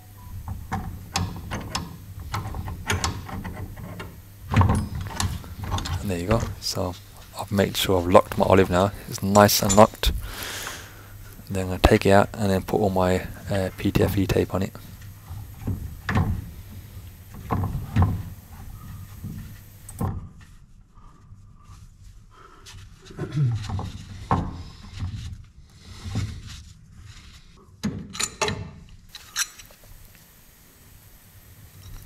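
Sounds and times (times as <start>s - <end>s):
metallic clicks and knocks on pipe: 0.4s - 6.5s.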